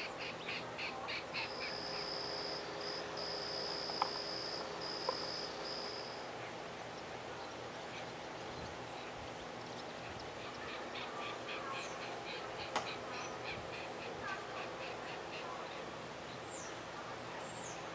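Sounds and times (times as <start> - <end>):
insect trilling buzz: 1.4 - 6.2.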